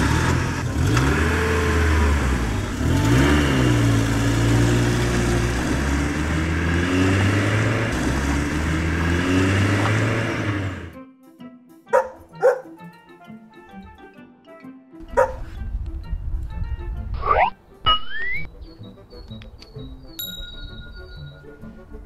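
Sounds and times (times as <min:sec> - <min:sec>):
truck engine revving: 0:00.0 - 0:11.0.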